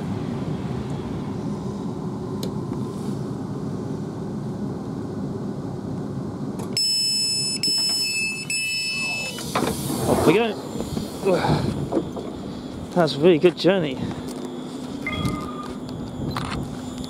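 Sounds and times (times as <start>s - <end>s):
electric train humming: 0.0s - 17.0s
train door warning beeps: 6.7s - 9.8s, 10.7s - 17.0s.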